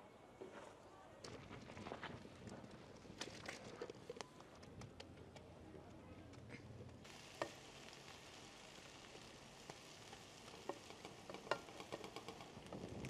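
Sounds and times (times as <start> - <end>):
herbs sizzling in oil: 7.0 - 13.0.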